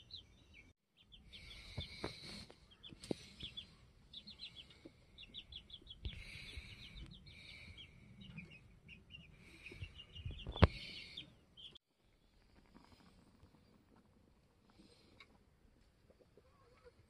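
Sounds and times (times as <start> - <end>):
birds chirping: 0.0 - 11.8.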